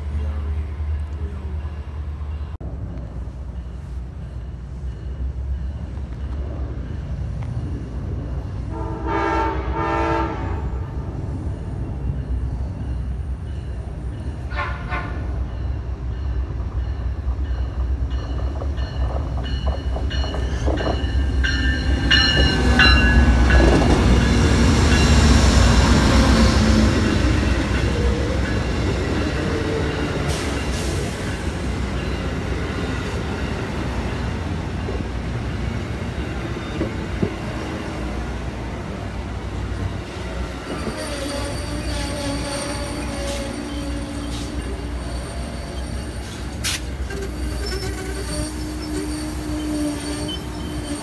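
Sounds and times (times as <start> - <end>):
train wheels rumbling on rails: 0.0 - 51.0
high wheel squeal: 40.7 - 51.0.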